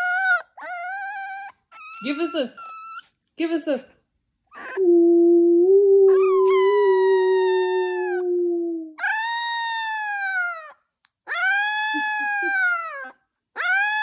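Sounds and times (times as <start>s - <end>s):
puppy howling: 0.0s - 3.1s, 5.4s - 14.0s
deeper steady howl: 4.8s - 8.9s.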